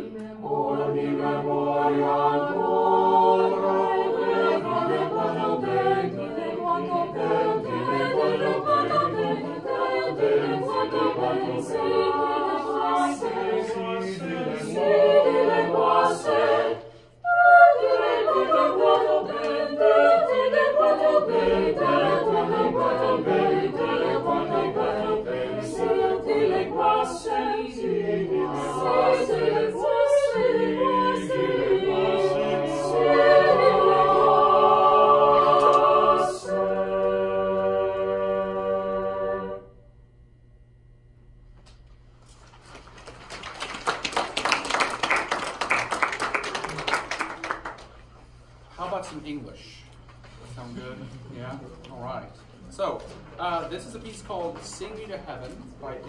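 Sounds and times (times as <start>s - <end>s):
choir singing a cappella: 0.0s - 39.8s.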